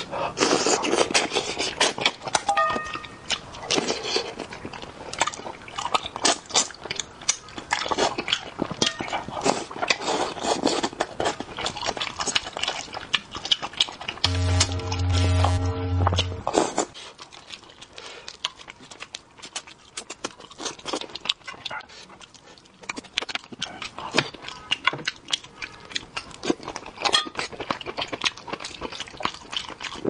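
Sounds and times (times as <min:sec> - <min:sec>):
person chewing: 0:00.0 - 0:14.4, 0:16.2 - 0:30.0
wet mouth clicks and smacks: 0:17.3 - 0:30.0.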